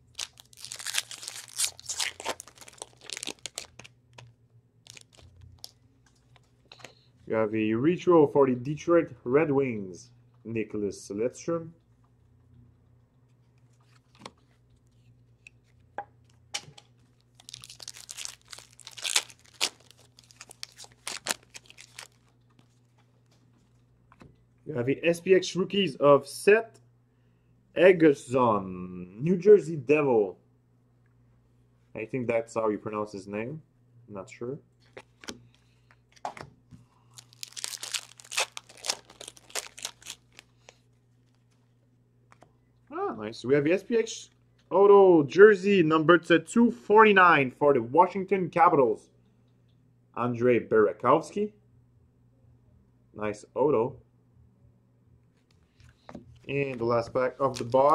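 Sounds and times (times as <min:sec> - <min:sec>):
wrapper tearing and crinkling: 0:00.0 - 0:05.8, 0:17.1 - 0:22.8, 0:37.0 - 0:41.6, 0:57.4 - 0:57.9.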